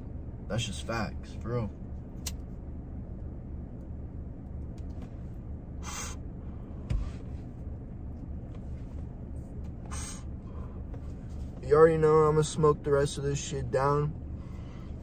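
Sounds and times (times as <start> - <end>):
car cabin hum: 0.0 - 15.0
soft thump: 6.8 - 7.3.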